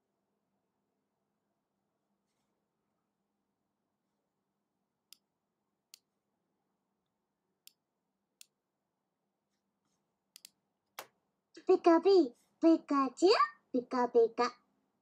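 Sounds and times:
faint computer mouse clicks: 0:10.3 - 0:11.2.

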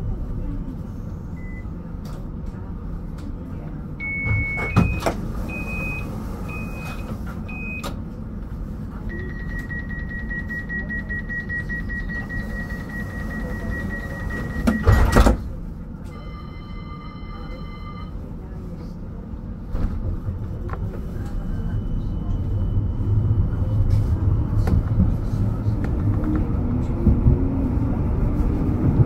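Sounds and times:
tram humming: 0:00.0 - 0:29.0
doors closing with clunk: 0:04.1 - 0:05.3, 0:14.3 - 0:15.5
short electronic beeps: 0:09.1 - 0:15.0.

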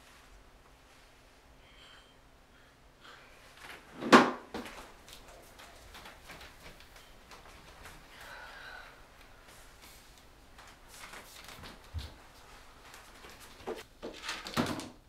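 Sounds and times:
wardrobe door banging shut: 0:04.0 - 0:04.5.

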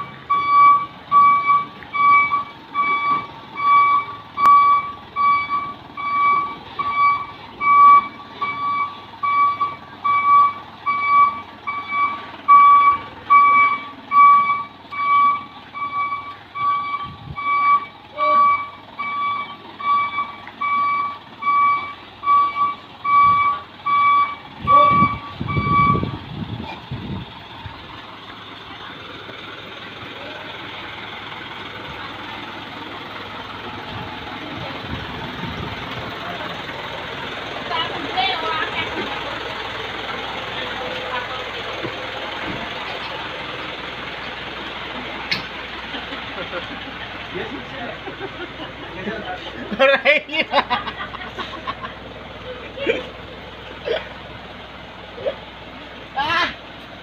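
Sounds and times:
truck reversing alarm beeping: 0:00.0 - 0:26.5
low truck engine: 0:00.0 - 0:57.0.

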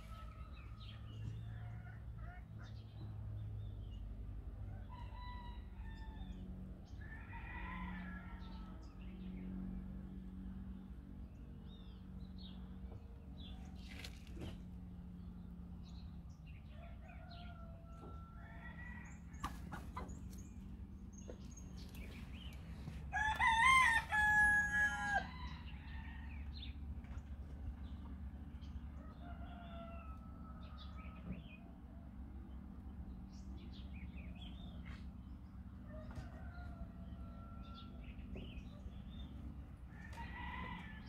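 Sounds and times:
rooster crowing: 0:23.1 - 0:26.3.

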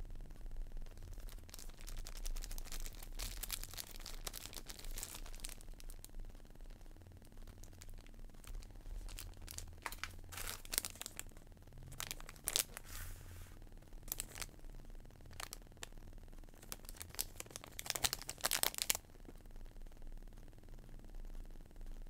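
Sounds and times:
plastic bags crinkling: 0:01.1 - 0:06.0, 0:07.6 - 0:11.2, 0:11.9 - 0:13.2, 0:14.1 - 0:14.5, 0:15.3 - 0:15.6, 0:16.6 - 0:19.0.

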